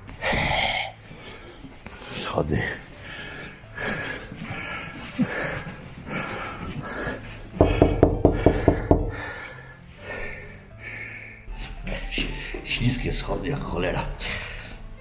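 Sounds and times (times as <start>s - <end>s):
man panting: 3.0s - 11.7s
knocking on wooden door: 7.6s - 9.2s.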